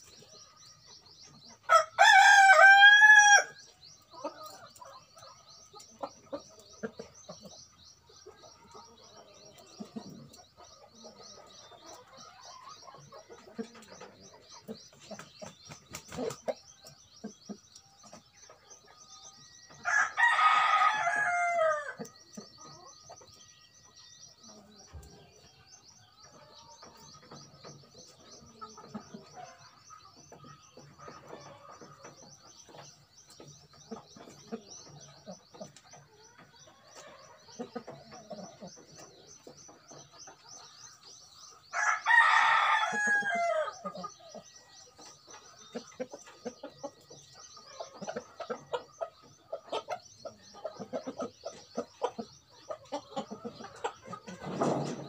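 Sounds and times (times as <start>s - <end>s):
rooster crowing: 1.7s - 3.6s, 19.8s - 21.9s, 41.7s - 43.7s.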